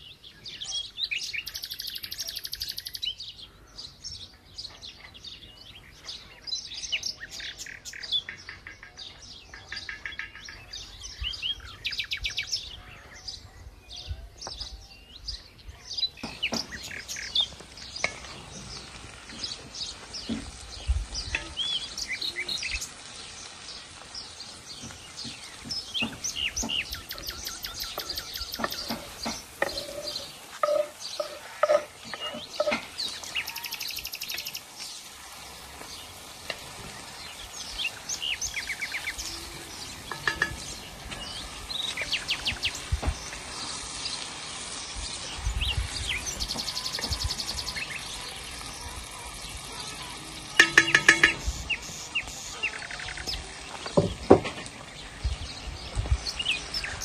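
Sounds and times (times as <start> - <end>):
birds chirping and singing: 0.0 - 57.0
cabbage frying in pan: 16.0 - 57.0
metal spatula scraping pan: 27.9 - 33.1.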